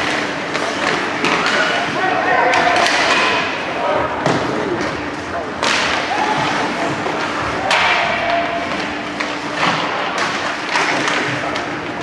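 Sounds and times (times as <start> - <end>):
crowd noise: 0.0 - 12.0
sticks and puck knocking boards: 7.6 - 11.9.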